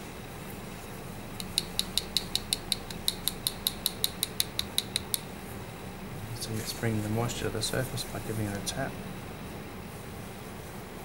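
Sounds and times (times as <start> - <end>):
metal tool tapping dental model: 1.4 - 5.3.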